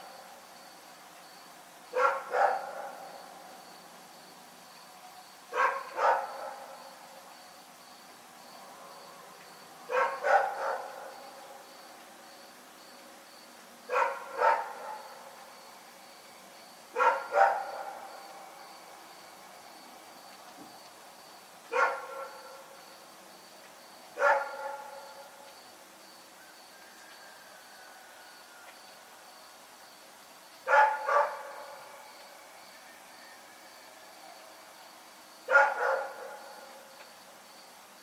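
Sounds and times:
dog barking: 2.0s - 3.1s, 5.5s - 6.8s, 9.9s - 11.3s, 13.9s - 15.1s, 17.0s - 18.1s, 21.7s - 22.6s, 24.2s - 25.3s, 30.7s - 31.7s, 35.5s - 36.7s.

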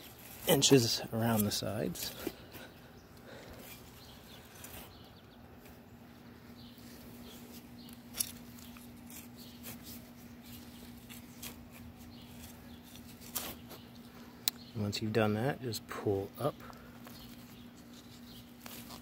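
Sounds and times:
hand spade scraping soil: 0.0s - 2.7s, 6.7s - 13.9s, 17.1s - 19.0s
steady low hum: 0.0s - 19.0s.

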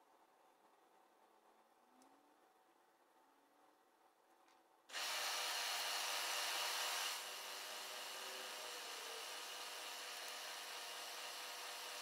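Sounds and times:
milling machine drilling metal: 4.9s - 12.0s.

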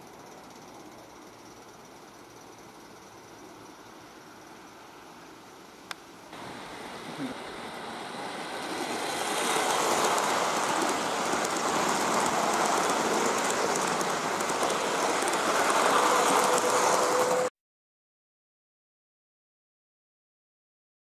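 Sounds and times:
locomotive motor hum: 6.3s - 17.5s
model train wheels rattling on rail: 6.4s - 17.5s.

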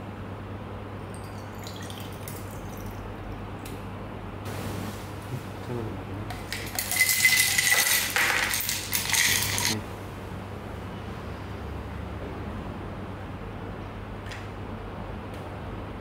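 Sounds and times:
ice cubes clinking against glass: 6.3s - 9.8s.

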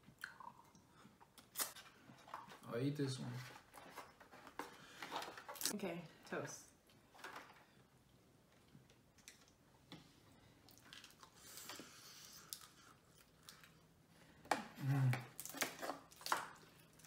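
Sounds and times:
soft chewing: 8.0s - 17.0s
crab shells cracking: 15.3s - 17.0s.

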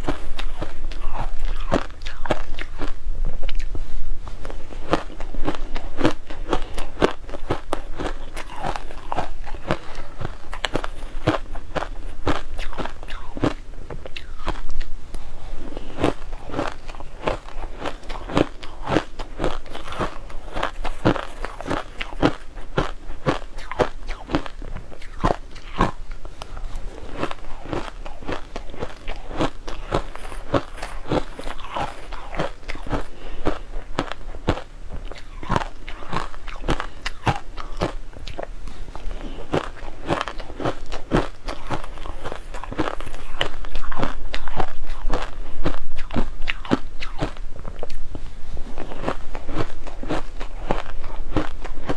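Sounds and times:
crunching and chewing shaved ice: 0.0s - 51.9s.

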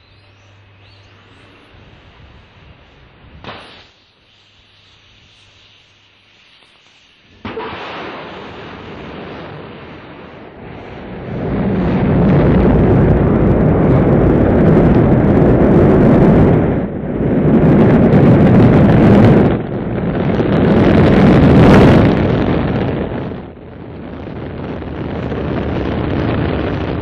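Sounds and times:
rocket engines igniting: 0.0s - 27.0s
deep rocket rumble: 7.3s - 27.0s.

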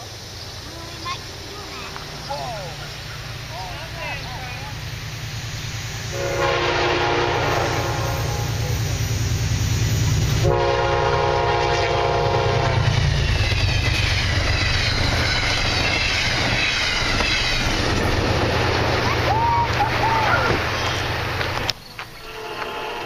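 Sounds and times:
locomotive engine rumble: 0.0s - 23.0s
train wheels on rails: 0.0s - 23.0s
locomotive horn blasts: 6.1s - 8.8s, 10.4s - 12.9s, 22.2s - 23.0s.

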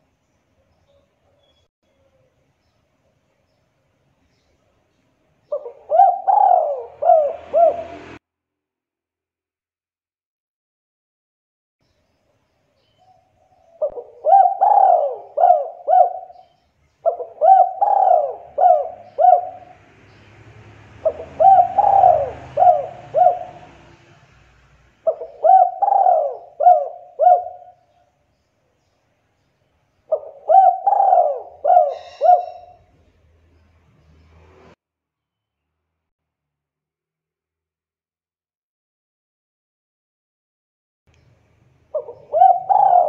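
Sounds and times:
dove cooing: 5.5s - 8.2s, 13.4s - 19.8s, 21.0s - 24.1s, 25.0s - 28.0s, 30.1s - 32.9s, 41.9s - 43.0s.

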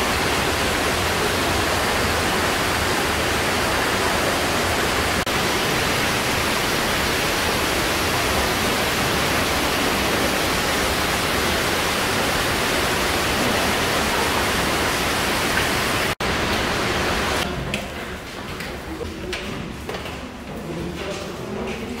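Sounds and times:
waterfall rushing: 0.0s - 17.5s.

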